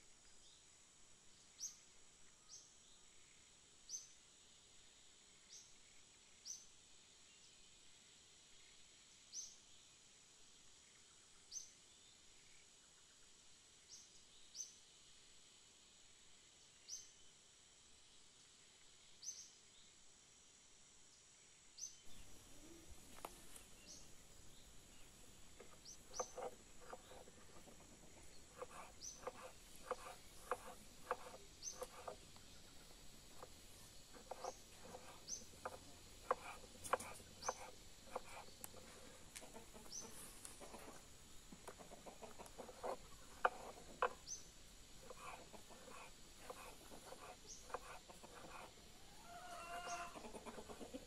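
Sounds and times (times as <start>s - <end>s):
small bird chirping: 21.8s - 51.0s
knife cutting on wooden board: 25.5s - 41.0s, 42.3s - 44.3s, 45.0s - 48.8s
hens clucking: 34.2s - 44.2s, 47.7s - 51.0s.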